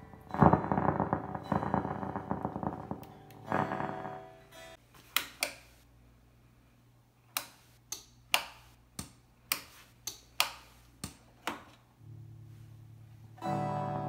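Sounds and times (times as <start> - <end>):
sustained instrument note: 0.0 - 4.4
amplifier hum: 0.0 - 4.7.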